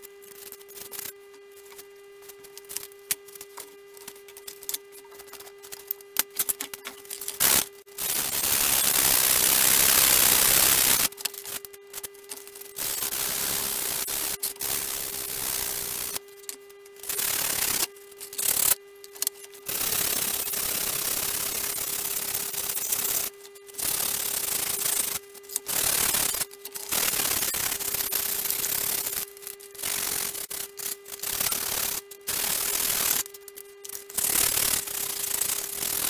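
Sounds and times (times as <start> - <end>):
steady hum: 0.0 - 36.0.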